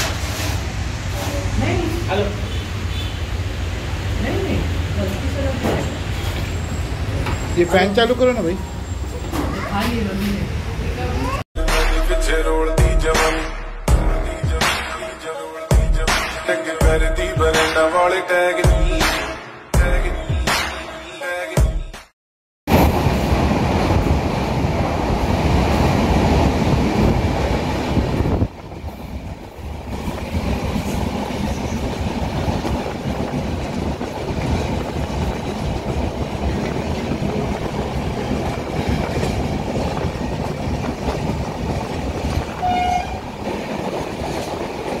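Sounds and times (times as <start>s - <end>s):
train running on rails: 0.0s - 11.4s, 22.7s - 45.0s.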